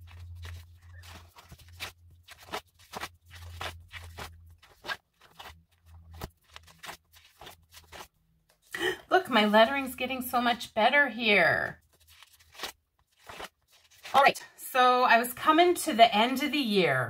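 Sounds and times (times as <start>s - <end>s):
paper pages flipping: 0.0s - 8.7s, 11.8s - 14.4s.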